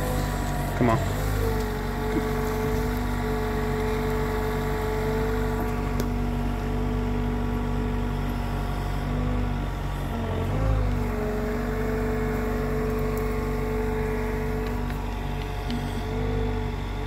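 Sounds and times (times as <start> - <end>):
diesel engine running: 0.0 - 17.0
steady whine: 0.0 - 17.0.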